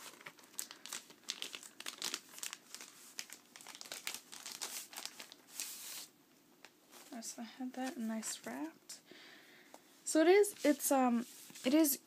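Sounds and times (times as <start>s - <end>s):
packaging wrap crinkling: 0.0s - 6.1s.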